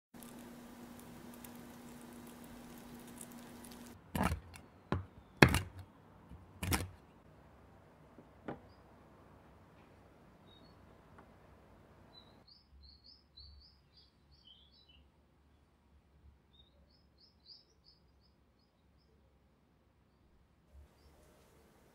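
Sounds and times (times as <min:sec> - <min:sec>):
faint steady hum: 0:00.2 - 0:05.0
knife chopping on wooden board: 0:04.2 - 0:05.8.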